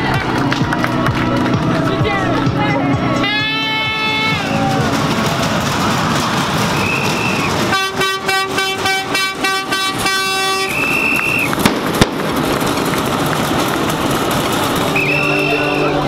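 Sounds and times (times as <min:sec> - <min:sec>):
street crowd noise: 0:00.0 - 0:16.0
sharp bangs: 0:04.4 - 0:15.5
shrill whistle: 0:06.7 - 0:07.6, 0:10.7 - 0:11.5, 0:14.9 - 0:15.9
horn short blasts: 0:06.8 - 0:11.4.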